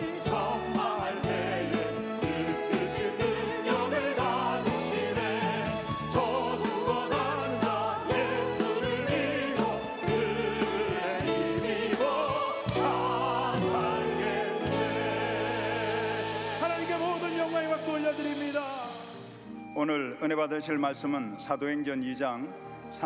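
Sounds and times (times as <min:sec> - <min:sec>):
church choir singing: 0:00.0 - 0:18.4
instrumental accompaniment: 0:00.0 - 0:23.0.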